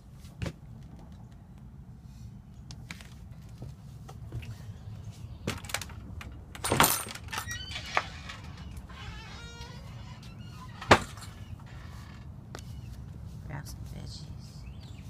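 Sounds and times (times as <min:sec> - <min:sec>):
door clicks and knocks: 0:05.5 - 0:09.8, 0:10.8 - 0:11.4.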